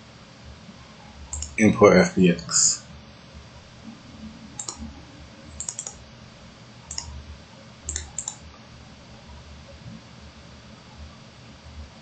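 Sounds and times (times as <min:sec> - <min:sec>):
computer mouse clicking: 0:01.3 - 0:01.6, 0:04.6 - 0:04.9, 0:05.5 - 0:06.0, 0:06.9 - 0:07.2, 0:07.9 - 0:08.4.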